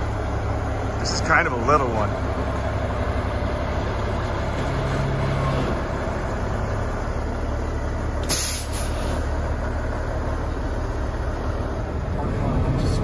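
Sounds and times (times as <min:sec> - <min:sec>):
diesel truck engine running: 0:00.0 - 0:13.0
brief hiss: 0:08.2 - 0:09.2.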